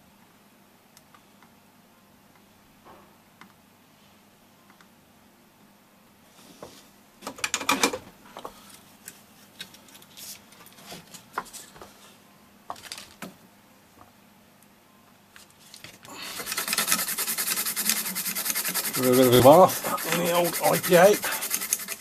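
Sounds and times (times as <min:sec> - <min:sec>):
tools clicking and rustling: 0:15.7 - 0:17.2
brush scrubbing circuit board: 0:16.3 - 0:22.0.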